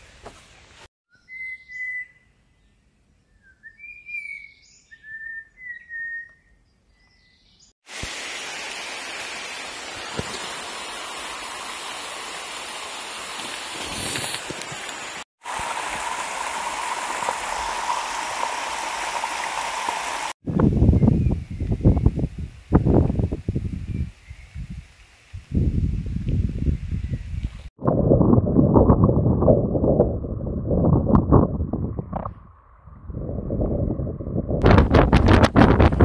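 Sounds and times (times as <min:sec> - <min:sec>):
bird whistled calls: 0:01.1 - 0:02.4, 0:03.3 - 0:07.7
stream pouring over rocks: 0:07.9 - 0:20.4.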